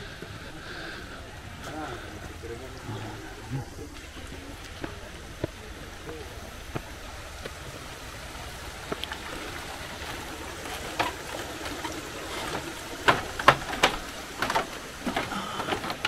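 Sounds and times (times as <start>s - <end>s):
footsteps on bamboo footbridge: 0.0s - 16.0s
stream rushing: 0.0s - 16.0s
bamboo creaking and clacking: 8.7s - 16.0s.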